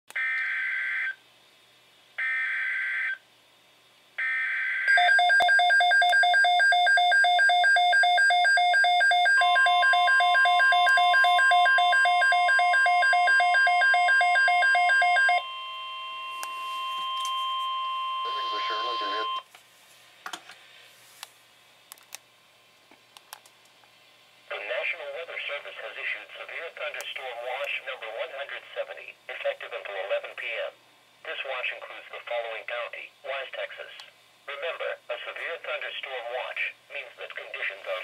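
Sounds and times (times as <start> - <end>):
radio alarm beeping: 4.2 - 19.5
steady attention tone: 4.2 - 19.5.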